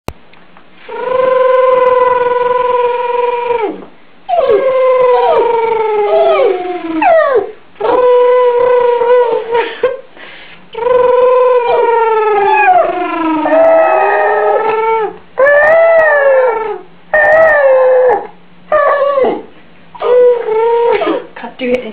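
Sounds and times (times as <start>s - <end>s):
dog howling: 1.0s - 9.4s, 10.8s - 21.2s.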